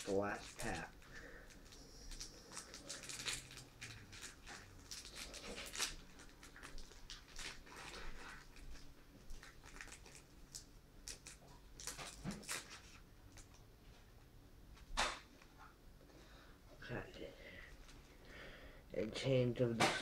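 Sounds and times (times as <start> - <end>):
foil wrapper crinkling and tearing: 0.0 - 13.6.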